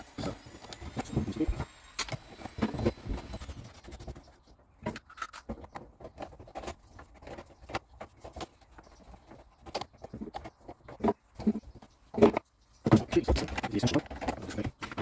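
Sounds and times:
plastic pipes clicking and knocking: 0:04.8 - 0:15.0.

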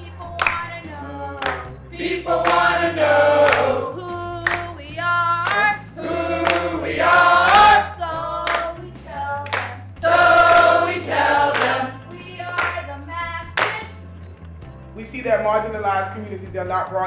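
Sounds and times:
hand claps: 0:00.2 - 0:00.8, 0:01.4 - 0:04.8, 0:05.4 - 0:08.8, 0:09.4 - 0:14.0
group chanting together: 0:01.4 - 0:04.6, 0:05.4 - 0:08.0, 0:09.5 - 0:12.8.

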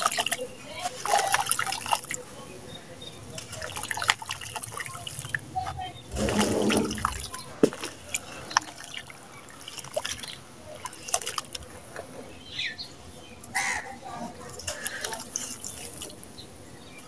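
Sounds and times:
water splashing: 0:00.0 - 0:02.6, 0:03.2 - 0:11.9, 0:14.3 - 0:16.3
wet cement squelching: 0:06.1 - 0:11.7, 0:14.6 - 0:16.2.

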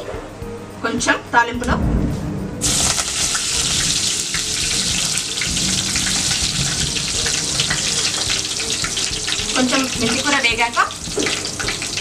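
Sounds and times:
leaves sizzling in hot oil: 0:02.6 - 0:12.0.

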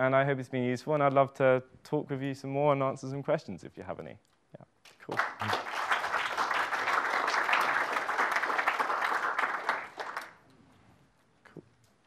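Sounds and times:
audience applauding: 0:05.0 - 0:10.4.

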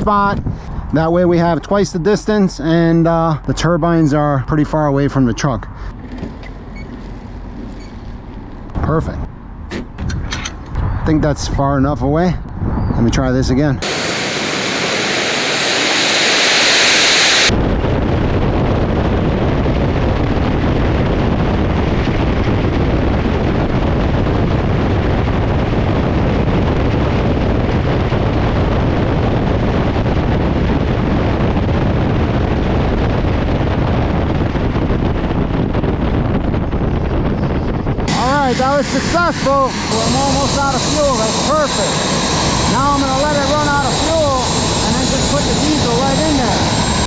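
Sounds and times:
jet engine roar: 0:13.7 - 0:47.0
jet engines hissing and whining: 0:13.8 - 0:18.2, 0:19.9 - 0:47.0.

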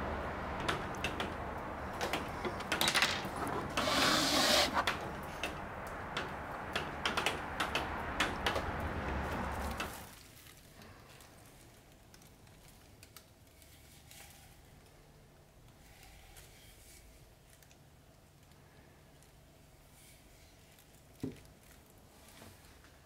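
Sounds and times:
rubbing hiss: 0:01.4 - 0:10.1.

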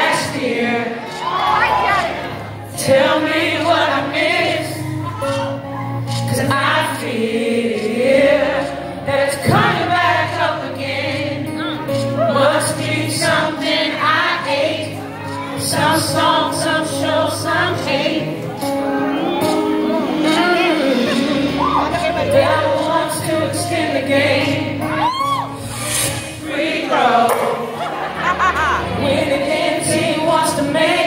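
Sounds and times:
acoustic guitar: 0:00.0 - 0:31.0
keyboard: 0:00.0 - 0:31.0
drums: 0:09.1 - 0:10.2, 0:17.8 - 0:27.8
bass guitar: 0:17.0 - 0:26.4.

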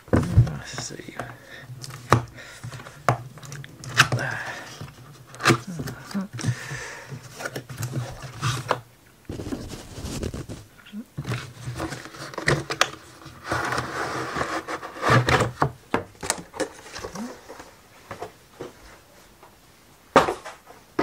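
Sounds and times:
plywood sheets rustling and scraping: 0:03.9 - 0:15.7.

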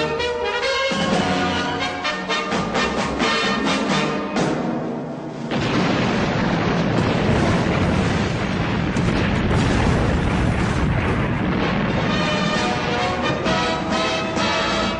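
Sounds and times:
explosion blast: 0:05.4 - 0:14.9
dense explosion noise: 0:05.5 - 0:14.2.

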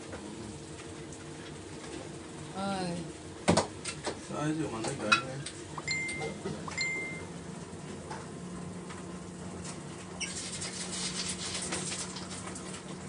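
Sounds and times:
low steady hum: 0:04.4 - 0:09.5
water splashing on hard surface: 0:10.2 - 0:12.8.

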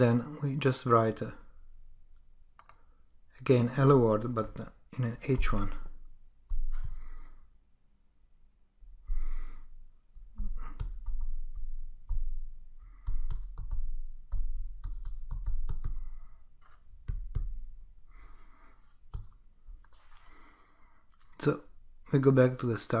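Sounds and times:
computer keyboard typing: 0:10.4 - 0:12.3, 0:13.0 - 0:17.6, 0:19.1 - 0:19.4.

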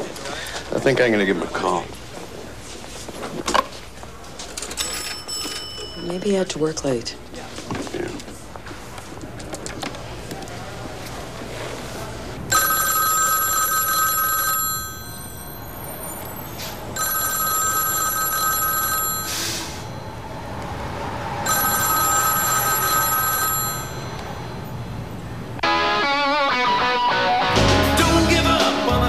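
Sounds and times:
telephone bell ringing: 0:04.8 - 0:06.3, 0:12.5 - 0:20.2, 0:21.4 - 0:24.7.

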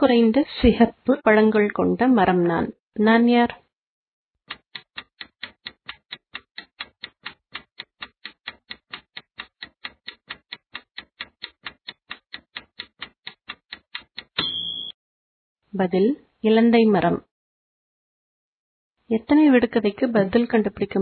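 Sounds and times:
clock ticking: 0:04.5 - 0:14.8.

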